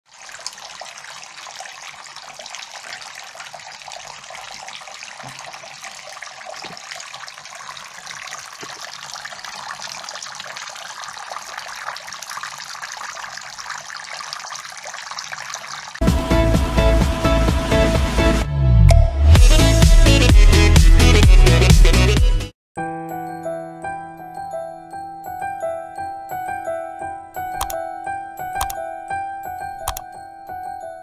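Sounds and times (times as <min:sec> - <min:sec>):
water trickling onto pebbles: 0:00.1 - 0:16.0.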